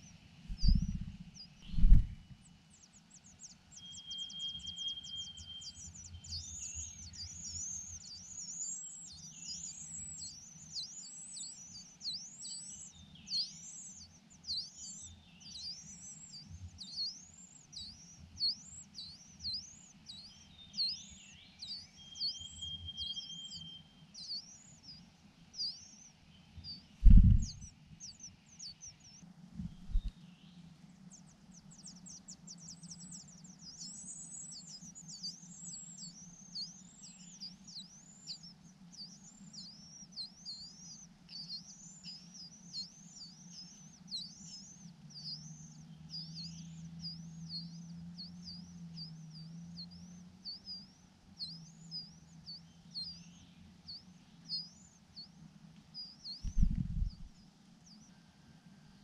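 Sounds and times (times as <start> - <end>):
nestlings begging calls: 0.5 - 2.0, 56.4 - 57.3.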